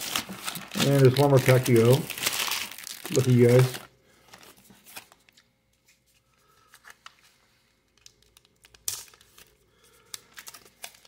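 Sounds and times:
card pack wrapper crinkling: 0:00.0 - 0:05.5, 0:07.9 - 0:11.0.

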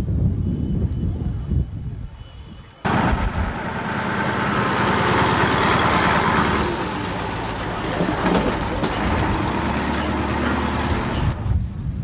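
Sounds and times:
diesel engine idling: 0:02.9 - 0:11.4.

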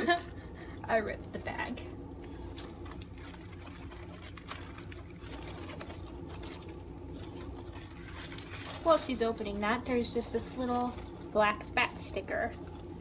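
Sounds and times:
plastic bag crinkling: 0:00.0 - 0:13.0
steady low hum: 0:00.0 - 0:13.0.

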